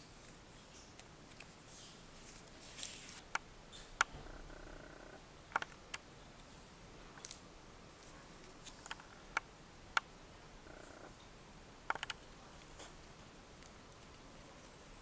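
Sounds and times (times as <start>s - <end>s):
paper and plastic rustling: 0.2s - 3.2s.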